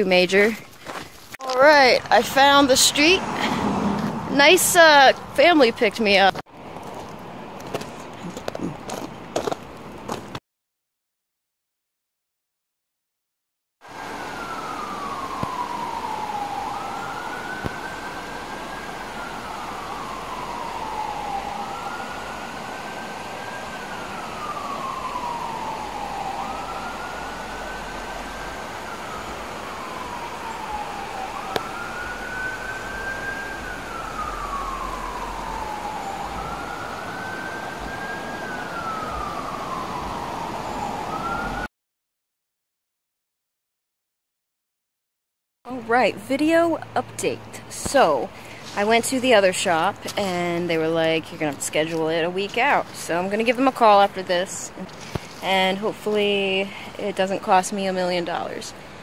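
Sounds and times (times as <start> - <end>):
siren wailing: 13.8 - 41.7.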